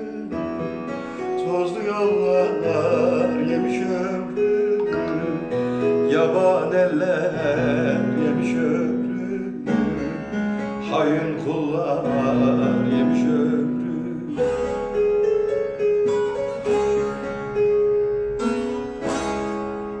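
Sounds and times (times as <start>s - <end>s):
plucked long-necked lute: 16.6s - 20.0s.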